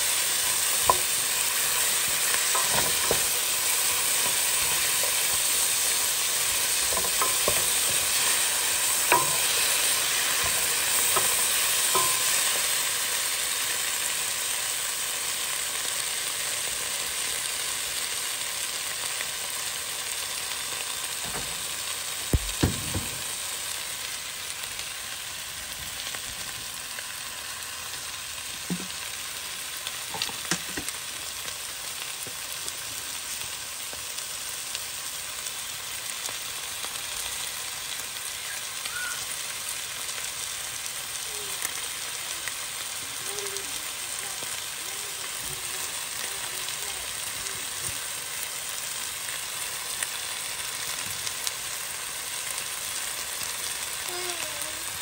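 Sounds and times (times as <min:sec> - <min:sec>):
food sizzling in a pot: 0:00.0 - 0:55.0
wooden spoon clacking on pot: 0:00.6 - 0:12.6.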